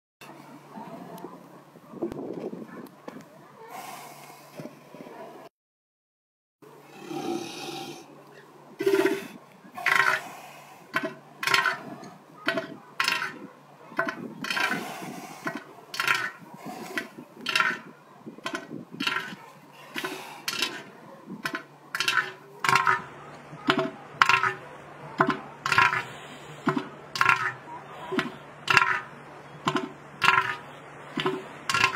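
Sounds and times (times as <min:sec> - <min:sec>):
elephant seal rasping pulses: 0:08.8 - 0:24.6, 0:25.2 - 0:29.1.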